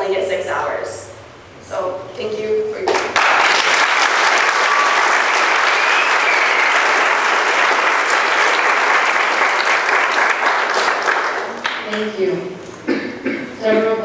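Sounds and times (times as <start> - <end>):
audience applauding: 2.9 - 11.9.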